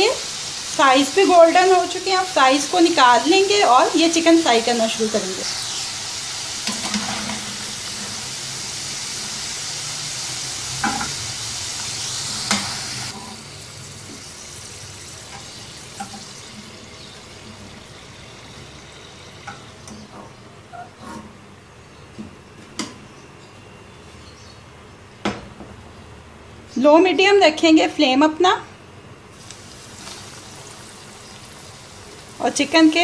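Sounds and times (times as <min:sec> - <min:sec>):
fries sizzling in hot oil: 0:00.0 - 0:21.0, 0:29.3 - 0:33.0.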